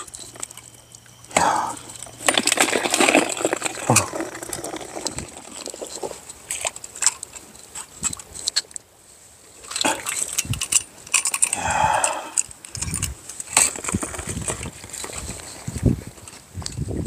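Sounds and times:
crabs clattering into bucket: 1.4s - 7.2s.

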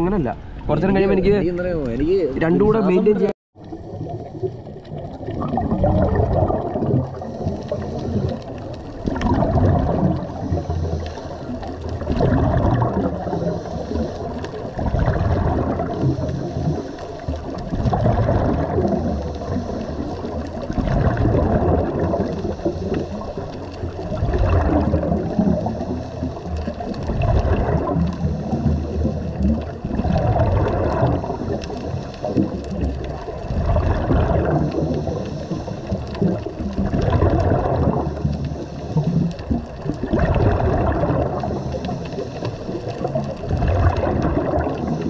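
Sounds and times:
gurgling rush of bubbles: 2.1s - 45.0s
diver breathing through regulator: 7.0s - 8.6s, 10.1s - 18.4s, 19.1s - 24.4s, 25.2s - 26.8s, 28.1s - 32.9s, 33.7s - 36.6s, 37.8s - 39.6s, 40.3s - 45.0s.

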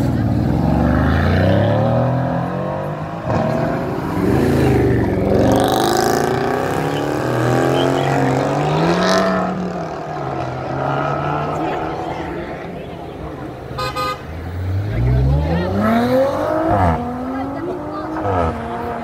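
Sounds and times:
sports car engines revving: 0.0s - 19.0s.

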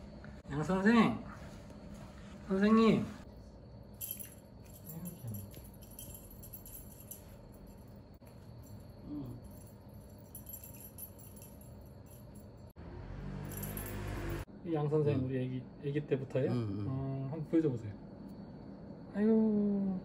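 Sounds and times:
small metal bell jingling: 3.8s - 12.7s, 13.4s - 14.5s.

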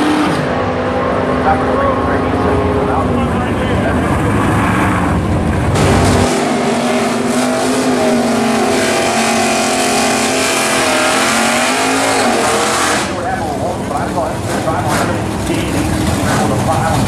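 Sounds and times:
drag race engines rumbling: 0.0s - 17.0s
engine at high revs: 0.0s - 17.0s.

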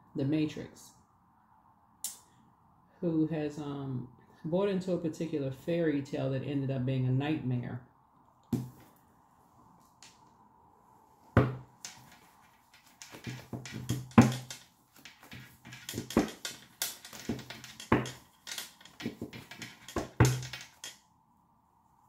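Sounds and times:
cards being shuffled: 11.4s - 20.9s.

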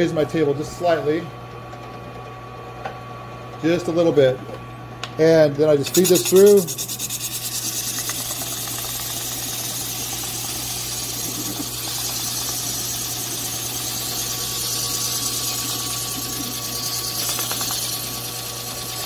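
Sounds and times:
sanding disc hiss on wood: 5.8s - 19.0s
drill press motor hum: 6.2s - 19.0s.

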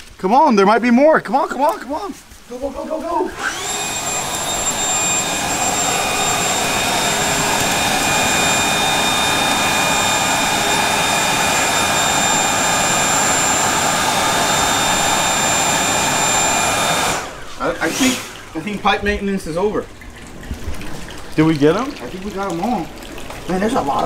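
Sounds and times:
leaf blower running: 3.3s - 18.8s.

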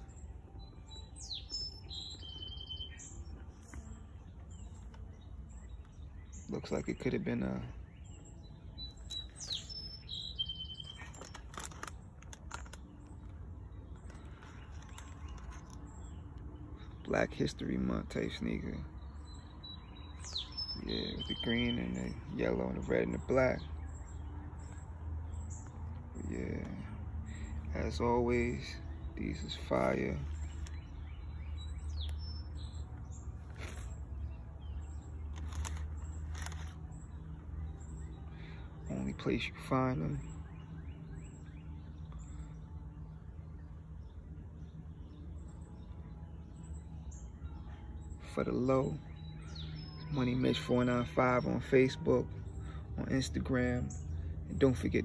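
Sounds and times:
birds chirping: 0.0s - 55.0s
low outdoor noise: 0.0s - 55.0s
sneaker rustling: 33.2s - 34.2s.

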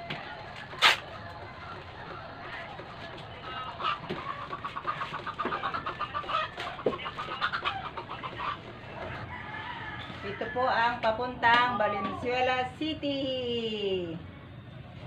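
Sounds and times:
chicken clucking: 0.0s - 11.2s.

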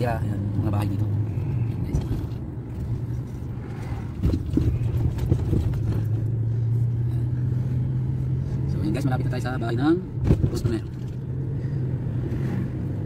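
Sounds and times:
car engine and road noise: 0.0s - 13.0s
short knocks and rattles: 4.1s - 6.3s.

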